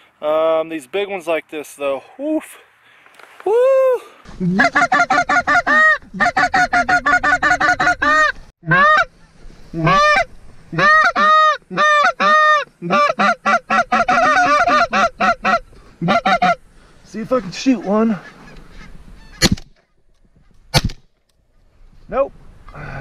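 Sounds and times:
goose call clucks and honks: 4.4 - 16.6, 17.6 - 19.6.

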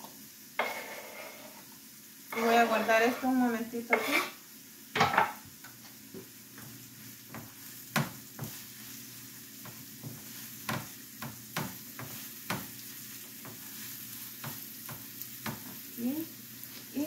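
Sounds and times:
onion sizzling in a frying pan: 0.0 - 17.0
utensils knocking against pan: 5.0 - 5.4, 9.6 - 12.7.

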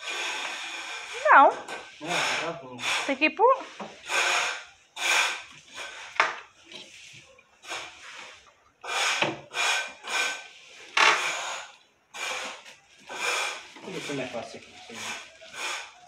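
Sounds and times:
drawer scraping on runners: 13.5 - 15.4.

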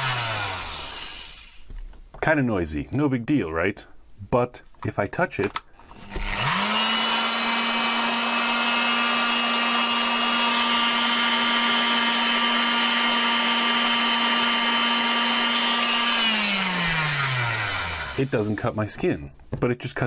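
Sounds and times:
oscillating multi-tool buzzing: 0.0 - 1.6, 5.9 - 18.4.

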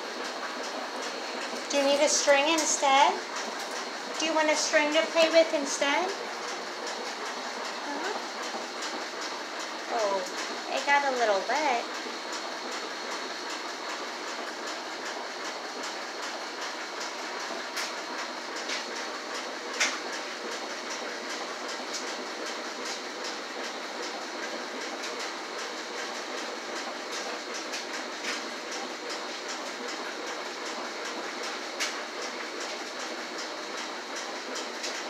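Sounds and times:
machine background noise: 0.0 - 35.0.

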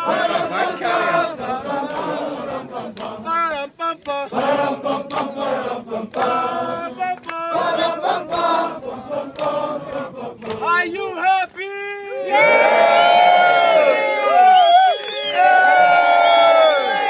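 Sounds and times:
group singing in chorus: 0.0 - 10.9.

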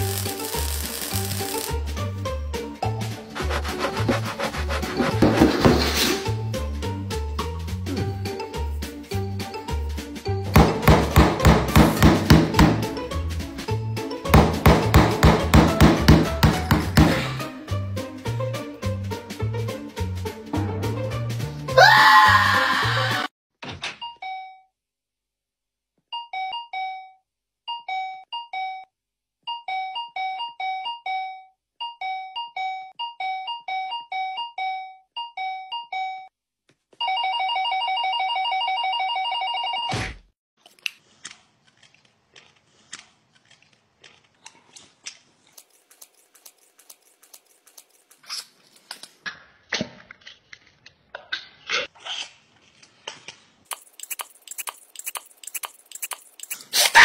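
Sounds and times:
rapid phone ringing: 37.0 - 39.9.

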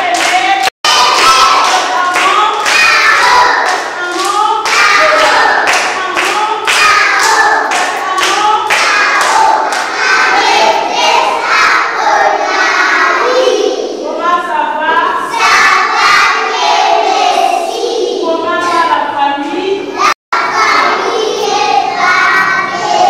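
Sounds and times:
hands clapping in rhythm: 0.0 - 10.6
children singing in chorus: 6.6 - 14.0, 15.3 - 18.2, 20.0 - 23.0.

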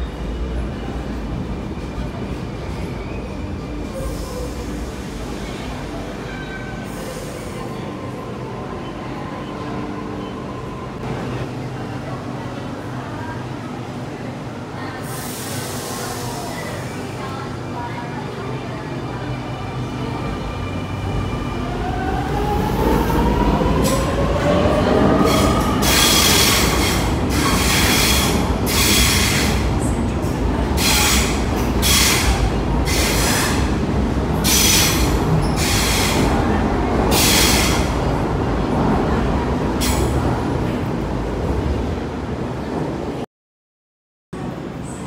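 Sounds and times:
train wheels hissing and squealing: 3.0 - 7.8, 25.3 - 29.6, 30.8 - 33.7, 34.4 - 36.3, 37.1 - 37.9.

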